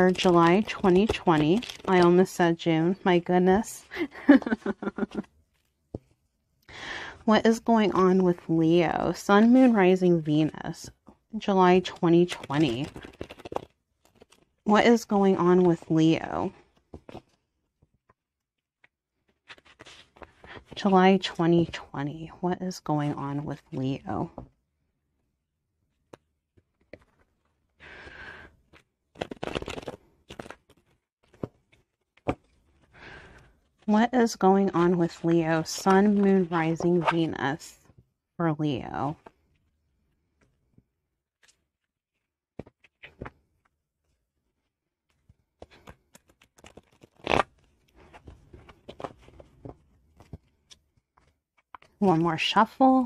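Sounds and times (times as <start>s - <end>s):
cards being shuffled: 0.0s - 2.4s, 11.8s - 14.6s, 16.6s - 17.4s, 18.8s - 20.9s, 26.0s - 27.6s, 28.7s - 32.8s, 41.4s - 43.7s, 45.1s - 52.2s.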